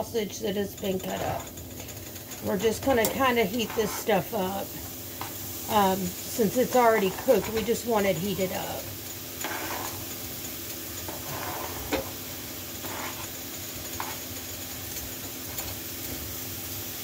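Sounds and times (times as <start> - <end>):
food sizzling in a skillet: 0.0 - 17.0
fork scraping cutting board: 9.4 - 10.1, 11.1 - 12.2, 12.8 - 13.4, 14.0 - 14.2.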